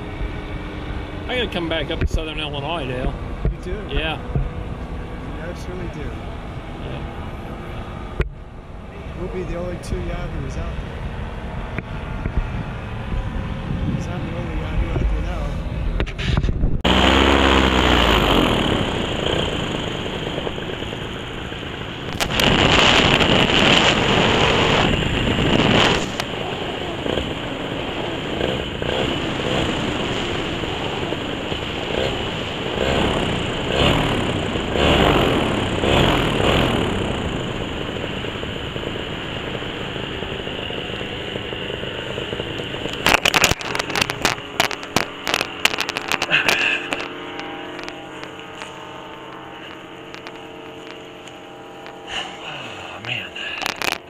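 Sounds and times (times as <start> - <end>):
paramotor engine and propeller drone: 0.0 - 54.0
wind rushing: 10.7 - 34.6.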